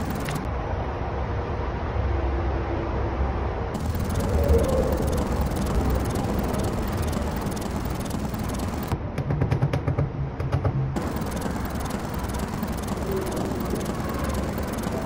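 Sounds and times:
passing traffic rumble: 3.6 - 9.0.

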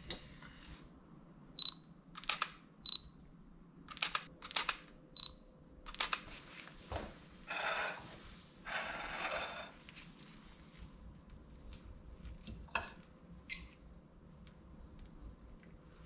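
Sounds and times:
cutlery scraping on a plate: 7.5 - 9.8.

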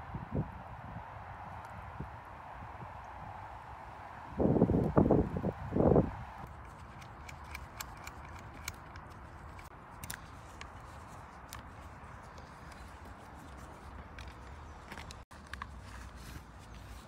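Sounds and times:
hand tools clicking and snipping: 6.5 - 10.7.

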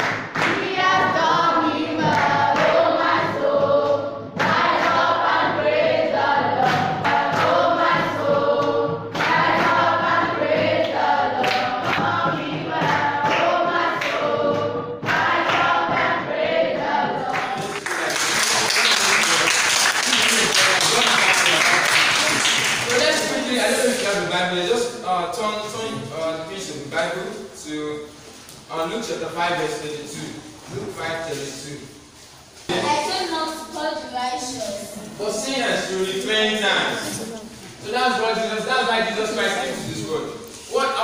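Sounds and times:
hand-clapping: 0.0 - 1.0, 10.8 - 12.2, 12.8 - 14.3, 15.0 - 16.1, 17.2 - 23.4
children singing gospel song: 0.0 - 41.0.

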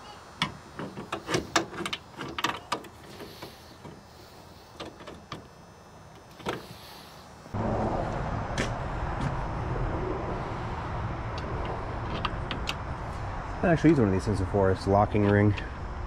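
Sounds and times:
steady rushing noise: 7.5 - 16.0.

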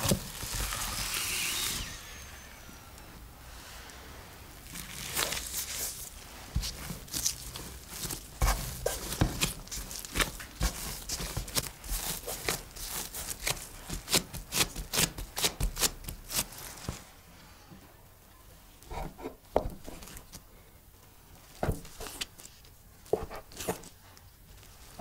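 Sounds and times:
hands kneading sticky dough: 4.6 - 17.1
rubbery rustle of gloves: 4.6 - 17.1.

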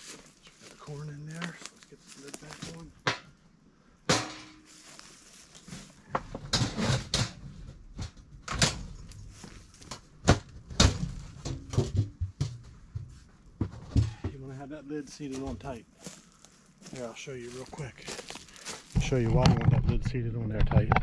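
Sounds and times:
knocks and thuds on feeder lid: 10.3 - 14.3.

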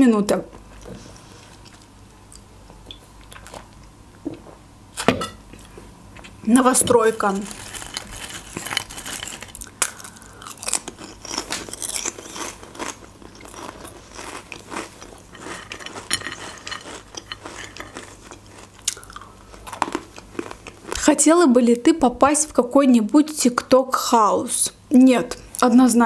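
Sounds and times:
crunching and chewing snacks: 7.1 - 21.2.

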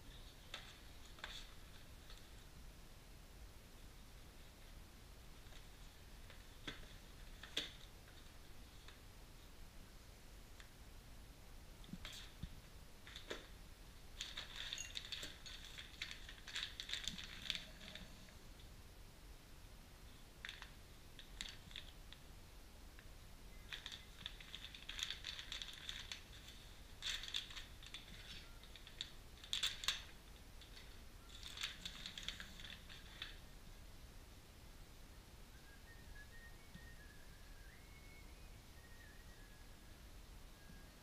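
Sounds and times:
plastic bags crinkling: 14.2 - 18.3, 20.4 - 22.0, 23.5 - 33.4.

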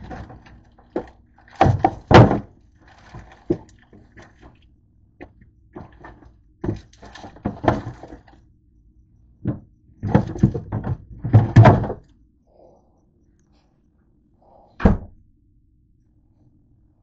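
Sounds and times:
items clattering in fridge drawer: 0.0 - 4.6, 5.8 - 8.4, 9.4 - 12.1.

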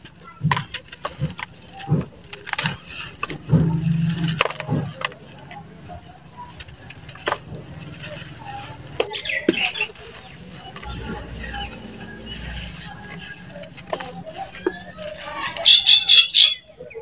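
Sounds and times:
dirt chunks crunching and cracking: 0.0 - 15.7
steady low hum: 10.2 - 14.8.

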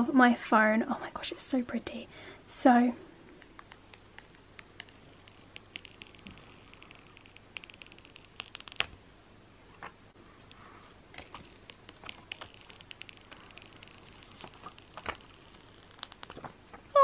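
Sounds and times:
plastic film peeling: 3.4 - 9.0, 11.1 - 17.0.

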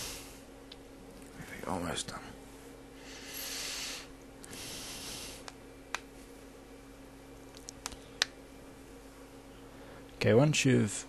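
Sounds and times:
soft breath-like hiss: 0.0 - 0.4, 3.0 - 5.5
microphone electrical hum and hiss: 0.0 - 11.0.

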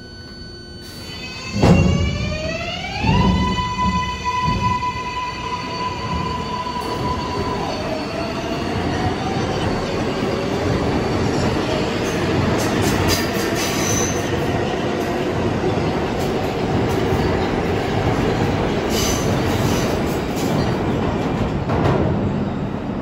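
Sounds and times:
train traction motor whine: 0.0 - 8.6
train wheels running on rails: 1.5 - 23.0.

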